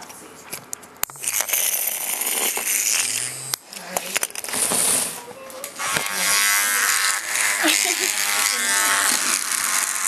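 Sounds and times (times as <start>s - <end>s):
vibration motor buzzing: 1.0s - 10.0s
plastic toys clicking and knocking: 3.8s - 6.1s.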